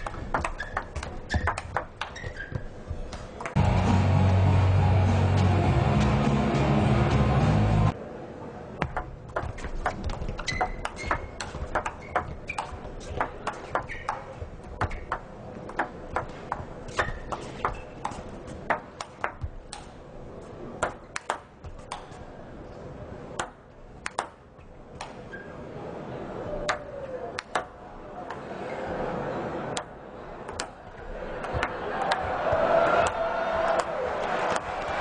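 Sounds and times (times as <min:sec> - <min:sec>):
table tennis ball hits: 0:00.0 - 0:03.6, 0:08.8 - 0:19.9, 0:20.8 - 0:22.2, 0:23.4 - 0:24.4, 0:27.4 - 0:27.7, 0:31.4 - 0:33.9.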